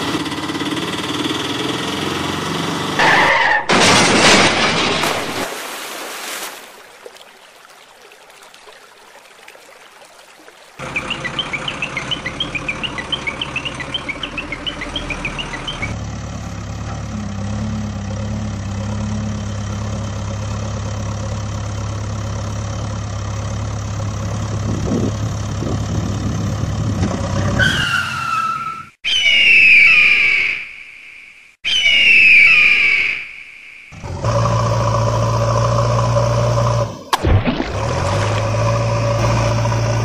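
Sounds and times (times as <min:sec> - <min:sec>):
engine idling: 0:00.0 - 0:02.6, 0:10.8 - 0:27.0
squealing whines falling in pitch: 0:27.6 - 0:30.6, 0:31.7 - 0:33.3.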